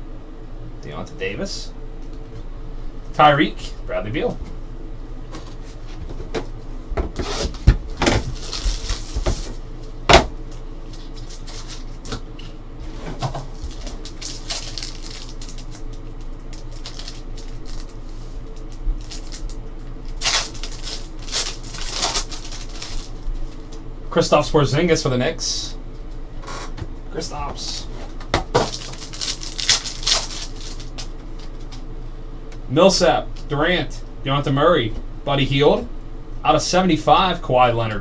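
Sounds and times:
foil pack crinkling and tearing: 7.2 - 9.6, 10.8 - 12.2, 13.2 - 23.7, 28.6 - 31.8.

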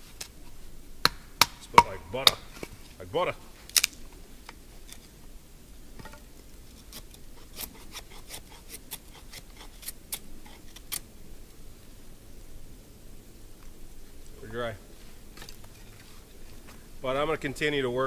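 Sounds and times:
knife scraping firewood: 1.5 - 5.2, 6.0 - 11.1.

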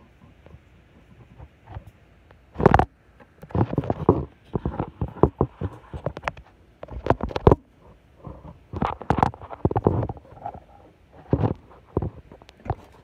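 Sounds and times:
microphone rubbing against cloth: 3.5 - 13.0.

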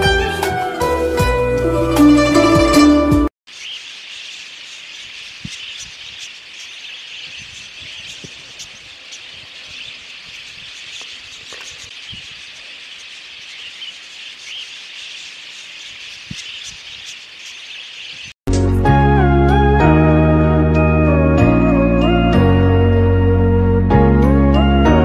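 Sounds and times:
budgerigar flock chattering: 3.6 - 18.3.

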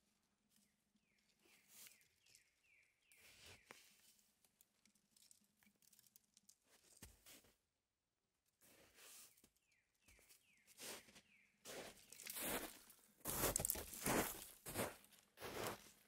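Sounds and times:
twigs rustling: 12.0 - 14.6.

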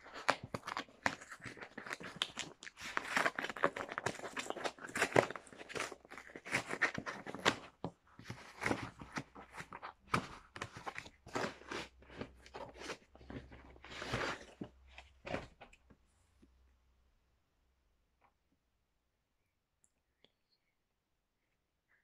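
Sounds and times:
paper crinkling and rustling: 0.0 - 15.9.

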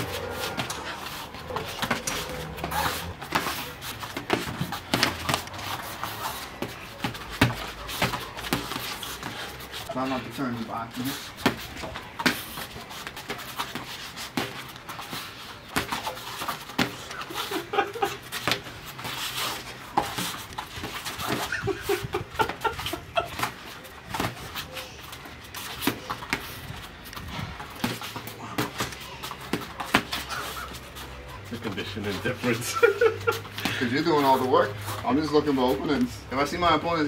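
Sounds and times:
boxing gloves thudding: 0.0 - 9.6, 11.3 - 30.8
hard breathing: 0.0 - 10.3, 26.4 - 31.4, 33.3 - 34.0
people laughing: 17.0 - 18.8, 21.2 - 23.9, 31.5 - 34.3.

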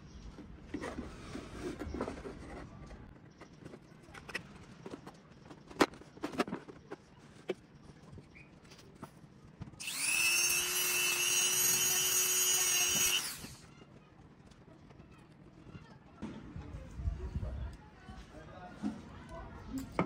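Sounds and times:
mini drill whining: 9.8 - 13.6.

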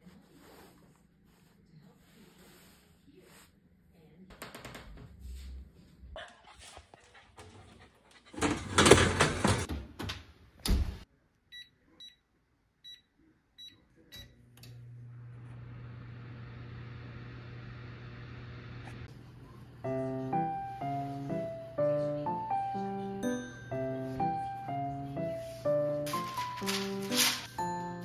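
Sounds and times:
oven humming: 14.5 - 19.8.

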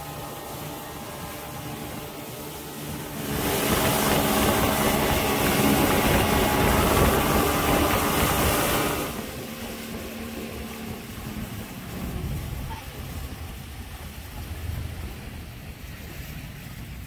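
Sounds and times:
motorboat engine running: 0.0 - 17.0
rushing water: 0.0 - 17.0
wind noise: 0.0 - 17.0.

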